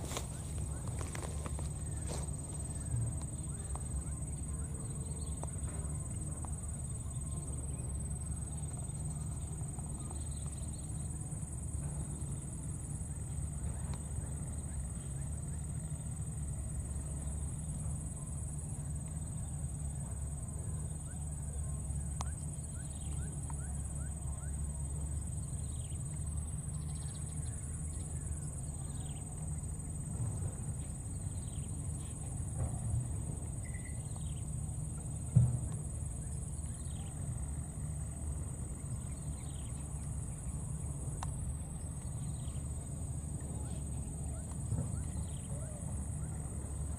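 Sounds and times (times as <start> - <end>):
high insect drone: 0.0 - 46.9.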